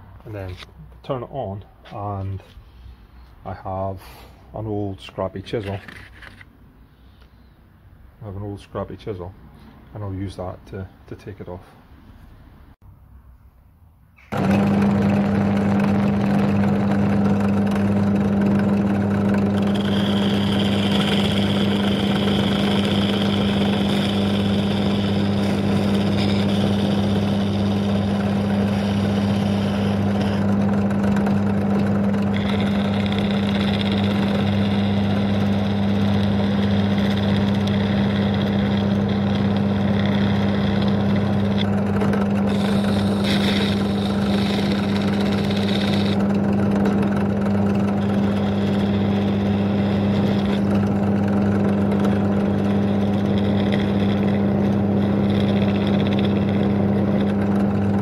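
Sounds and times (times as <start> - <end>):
chisel scraping spinning metal: 5.5 - 6.5, 14.3 - 58.0
drill motor humming: 14.3 - 58.0.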